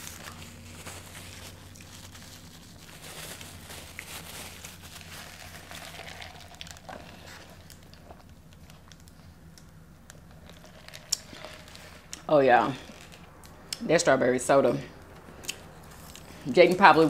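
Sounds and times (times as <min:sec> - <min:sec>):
wrapper paper crinkling: 0:00.0 - 0:09.1, 0:10.3 - 0:12.1, 0:12.7 - 0:13.5
low room hum: 0:00.0 - 0:17.0.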